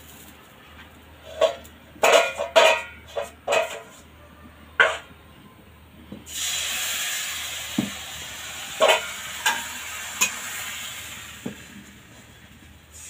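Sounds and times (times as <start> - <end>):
batter sizzling on hot pan: 6.3 - 13.0.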